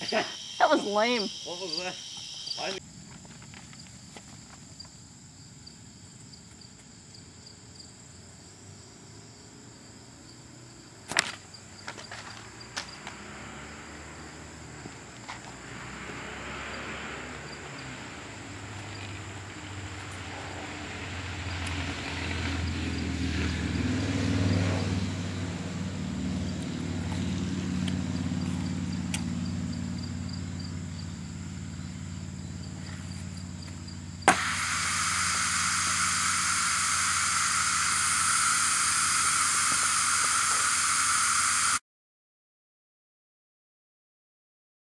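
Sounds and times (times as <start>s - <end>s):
passing vehicle engine rumble: 11.7s - 34.3s
air valve pop and hiss: 34.3s - 41.8s.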